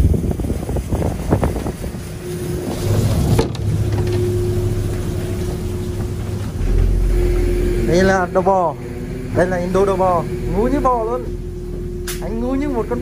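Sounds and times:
wind at sea: 0.0s - 8.0s
water rushing: 0.0s - 11.6s
boat engine humming: 0.0s - 13.0s.

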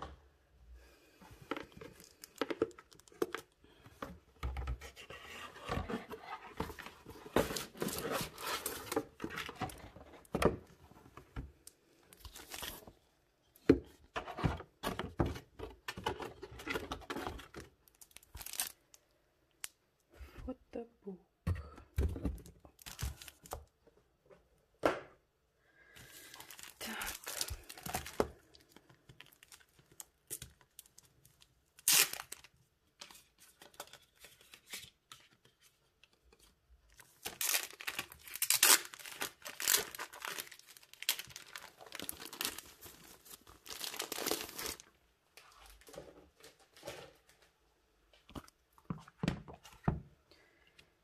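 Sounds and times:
plastic wrap crinkling: 17.4s - 19.0s, 26.1s - 34.8s, 36.9s - 45.0s.

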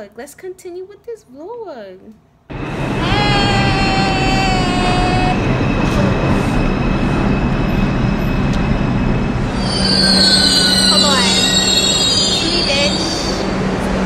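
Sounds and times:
falling whine: 2.5s - 14.0s
subway train rumble: 2.5s - 14.0s
metal wheel squeal: 5.8s - 13.5s.

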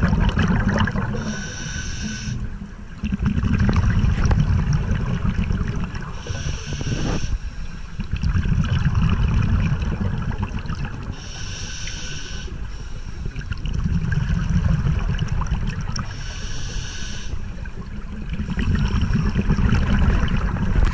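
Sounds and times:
exhaled bubbles rumbling: 0.0s - 1.6s, 2.3s - 11.3s, 13.2s - 16.2s, 17.4s - 20.9s
regulator inhalation hiss: 1.2s - 2.4s, 6.2s - 7.9s, 11.2s - 13.3s, 16.1s - 17.4s.

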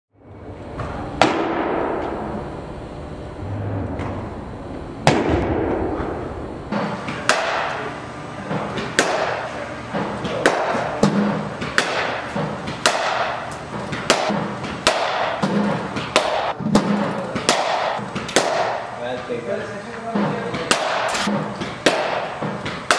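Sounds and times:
cricket bat striking ball: 6.7s - 7.9s, 8.6s - 18.9s, 20.2s - 22.9s.

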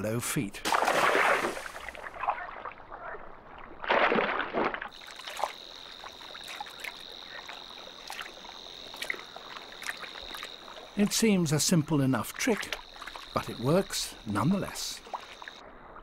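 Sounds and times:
shallow water sloshing: 0.7s - 15.9s
high-pitched insect trill: 4.9s - 15.6s.

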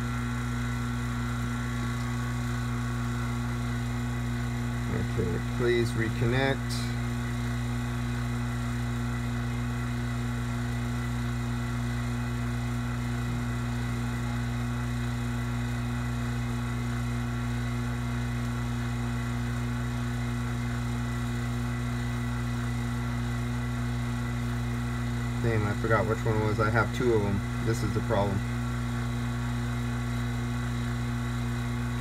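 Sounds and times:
vacuum pump humming: 0.0s - 32.0s.

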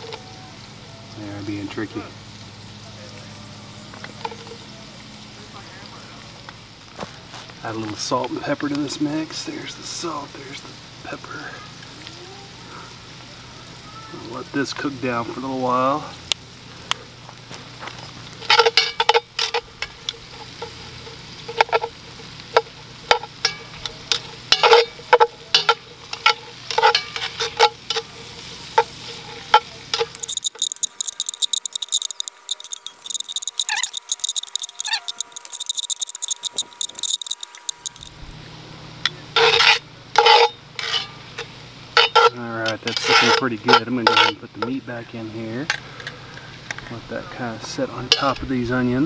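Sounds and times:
onions sizzling in fat: 0.0s - 49.0s
metal tongs scraping pot: 18.4s - 38.1s, 39.4s - 44.8s, 48.0s - 48.5s.

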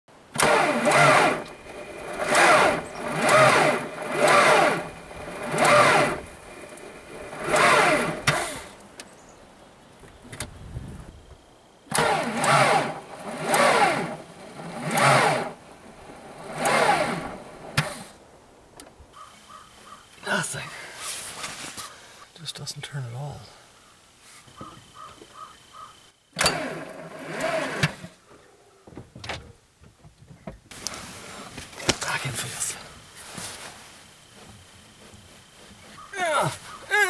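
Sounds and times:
starter motor cranking and whining: 0.3s - 9.2s, 11.9s - 18.3s, 19.3s - 20.2s, 24.0s - 29.4s, 30.7s - 37.0s.

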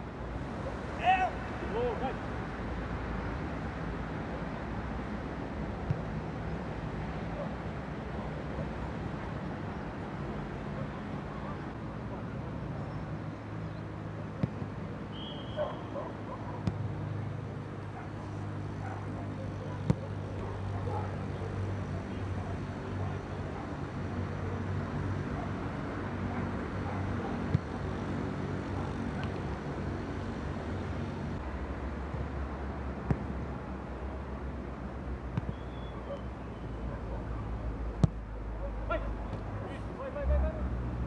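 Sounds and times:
football thuds: 14.4s - 14.7s, 16.6s - 16.9s, 33.0s - 33.3s, 37.9s - 38.2s.

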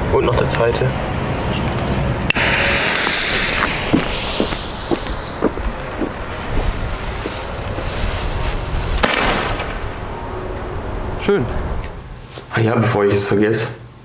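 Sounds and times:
firework hissing: 0.6s - 10.1s
firework pops: 9.0s - 9.8s.

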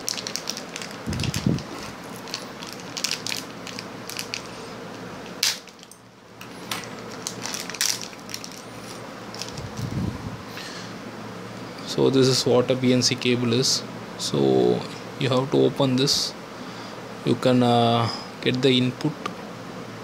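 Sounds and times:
plastic packet crinkling: 0.0s - 4.7s, 5.4s - 10.0s.

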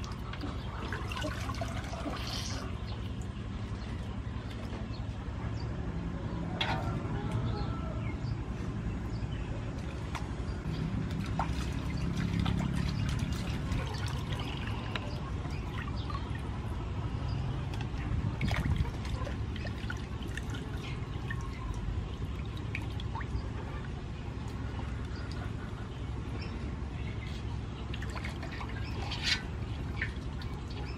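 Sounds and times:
water splashing in a basin: 0.0s - 4.7s, 9.8s - 23.6s, 27.8s - 30.9s
low steady rumble: 0.0s - 30.9s.

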